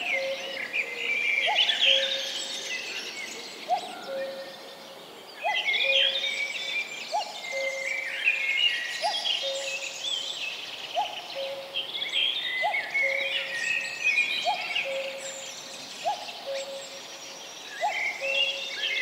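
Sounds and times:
birds chirping and trilling: 0.0s - 19.0s.

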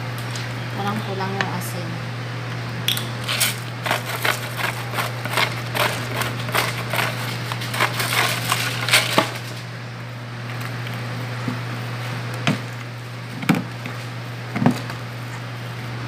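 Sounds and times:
steady low hum: 0.0s - 16.0s
seasoning container clicking and rattling: 3.3s - 9.4s.

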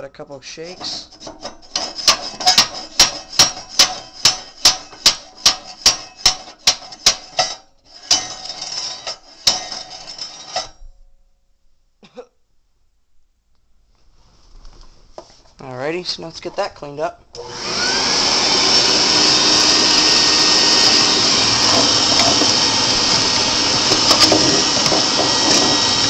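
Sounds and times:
metal scraping rattle: 0.6s - 10.9s, 19.0s - 26.0s
metal bar knocking on metal: 1.3s - 7.5s.

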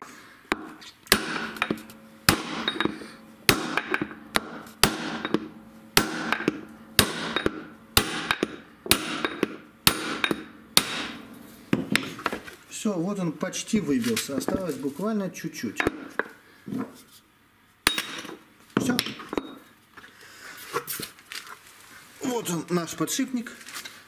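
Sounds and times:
hammer blows on metal drift: 0.5s - 12.3s.

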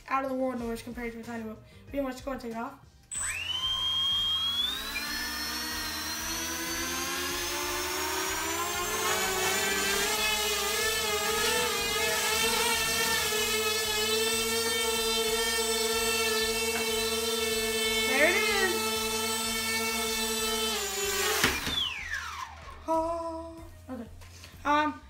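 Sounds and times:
electric motors and propellers whining: 3.1s - 22.8s.

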